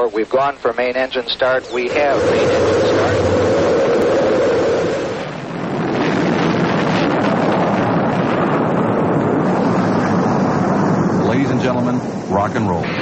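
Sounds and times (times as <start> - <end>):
rocket engines roaring: 0.0 - 13.0.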